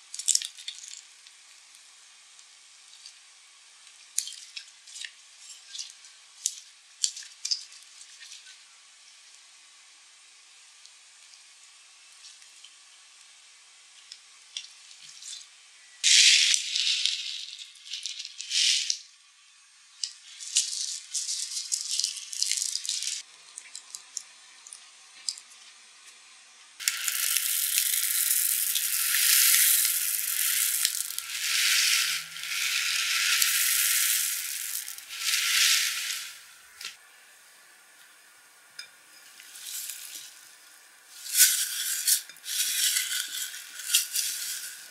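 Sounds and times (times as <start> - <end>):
foam beads poured into bowl: 20.4 - 23.2, 26.8 - 37.0, 39.3 - 44.9.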